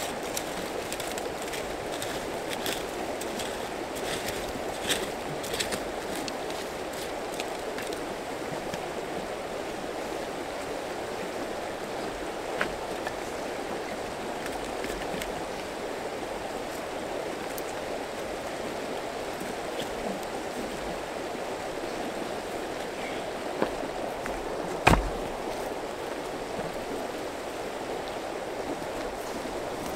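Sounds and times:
river rushing over rocks: 0.0s - 29.9s
firewood knocking on stone: 23.6s - 25.4s.

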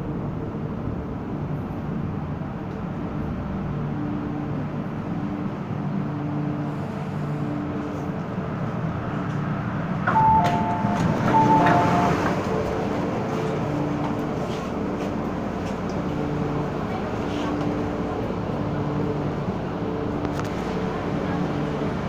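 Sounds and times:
train humming: 0.0s - 22.0s
two-note electronic chime: 10.1s - 12.8s.

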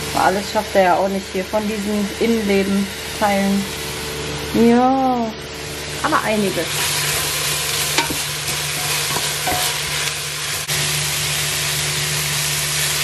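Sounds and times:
vegetables sizzling in a pot: 0.0s - 13.0s
wooden spoon stirring and scraping: 6.7s - 10.1s.

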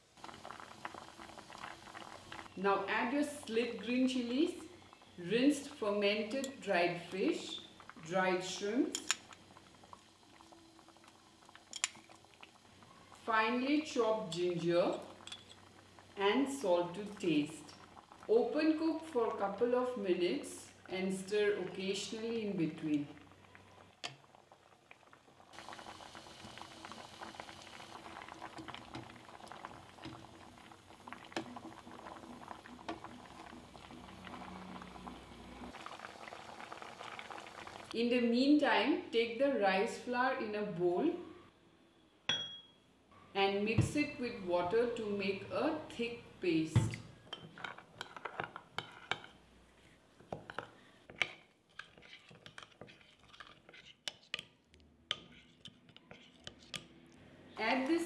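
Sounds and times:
broth boiling with crackling bubbles: 0.0s - 38.0s, 45.3s - 58.0s
metal spoon scraping ceramic bowl: 51.7s - 54.5s, 55.1s - 56.9s.

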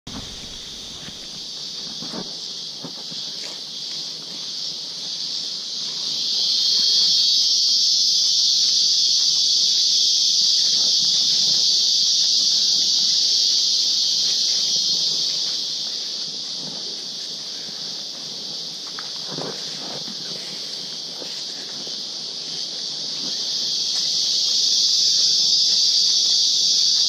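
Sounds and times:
footsteps on leaf litter: 0.1s - 4.6s
insects buzzing drone: 0.1s - 27.0s.

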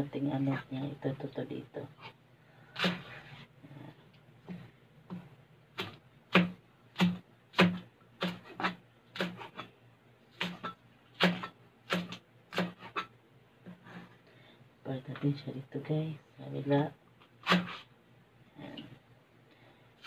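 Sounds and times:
knife chopping on cutting board: 4.5s - 9.7s, 10.4s - 13.1s.

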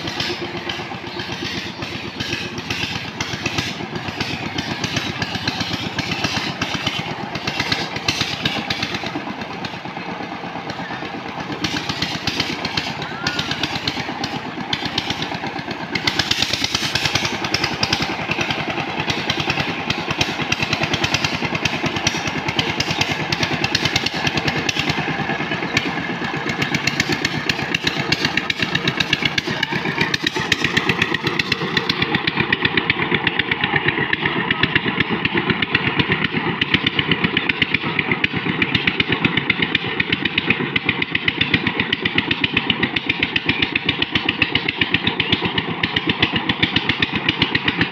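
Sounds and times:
diesel engine running: 0.0s - 47.9s.

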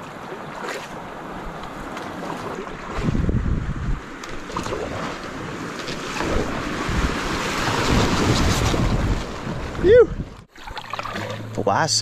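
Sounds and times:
paddle strokes splashing: 0.0s - 3.2s, 4.1s - 9.8s
river water moving: 0.0s - 12.0s
wind buffeting microphone: 1.3s - 10.5s.

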